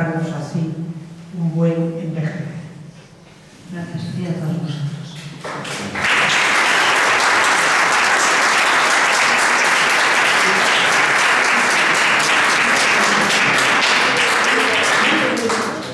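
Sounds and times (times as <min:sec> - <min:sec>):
crowd applauding: 0:05.5 - 0:15.9.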